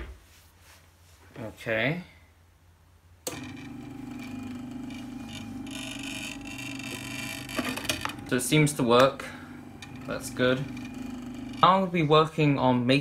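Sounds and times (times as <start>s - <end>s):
stepper motors buzzing and whining: 3.3s - 12.0s.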